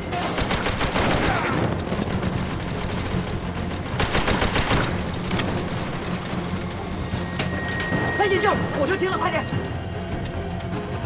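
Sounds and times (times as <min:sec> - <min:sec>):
rapid gunfire bursts: 0:00.1 - 0:06.2.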